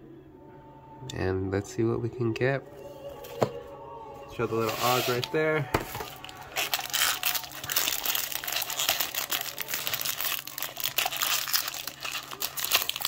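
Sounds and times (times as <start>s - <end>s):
foil pack crinkling and tearing: 4.6s - 13.0s.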